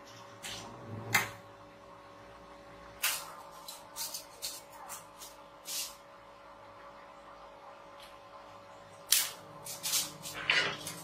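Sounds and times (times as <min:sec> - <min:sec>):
spot welder crackling snaps: 0:09.0 - 0:11.0.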